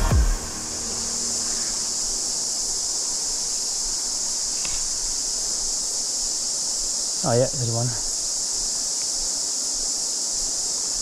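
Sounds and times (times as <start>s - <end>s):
river water flowing: 0.0s - 7.2s
cicadas buzzing: 0.0s - 11.0s.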